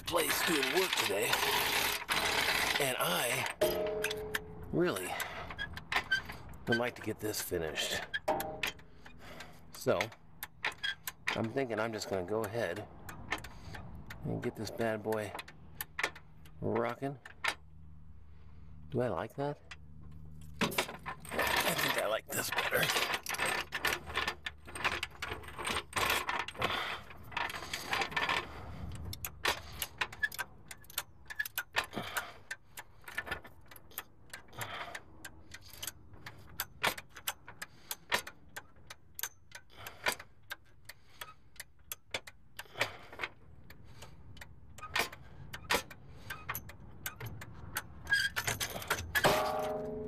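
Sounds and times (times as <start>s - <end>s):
small metal tools clinking: 0.0s - 9.2s, 20.3s - 28.6s, 48.0s - 50.0s.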